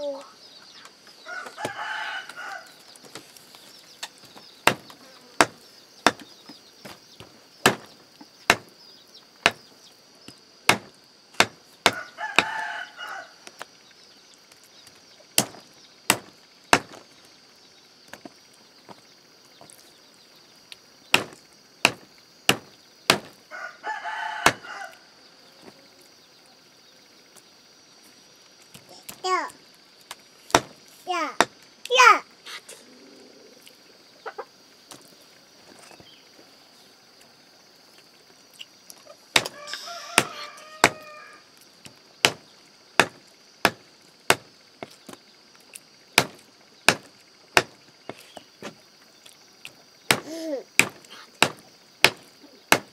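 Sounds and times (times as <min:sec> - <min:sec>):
rooster crowing: 0:01.2 - 0:02.9, 0:11.9 - 0:13.4, 0:23.5 - 0:25.2, 0:39.4 - 0:41.6
knife chopping meat and bones: 0:04.6 - 0:06.4, 0:07.6 - 0:07.9, 0:08.5 - 0:08.7, 0:10.7 - 0:12.6, 0:15.4 - 0:17.0, 0:21.1 - 0:23.4, 0:39.4 - 0:41.1, 0:42.2 - 0:44.5, 0:46.2 - 0:48.8, 0:50.1 - 0:52.9.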